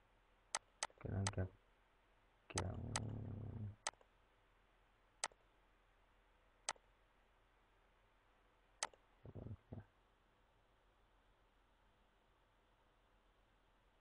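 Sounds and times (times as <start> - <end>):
computer mouse clicks: 0.6 - 1.4, 2.5 - 3.2.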